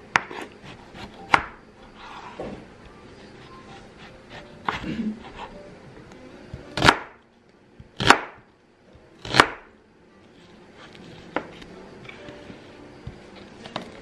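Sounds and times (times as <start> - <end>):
knife cutting onion on wooden board: 0.0 - 2.5, 3.4 - 5.6, 6.6 - 7.2, 7.8 - 8.4, 9.2 - 9.7.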